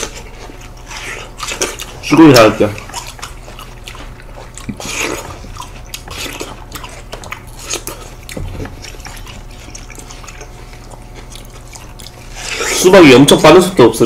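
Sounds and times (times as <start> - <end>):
watermelon crunching and slurping: 0.0 - 14.0.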